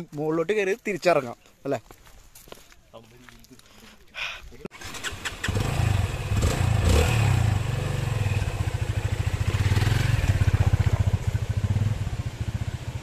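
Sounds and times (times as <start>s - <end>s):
motorcycle engine running: 4.8s - 13.0s.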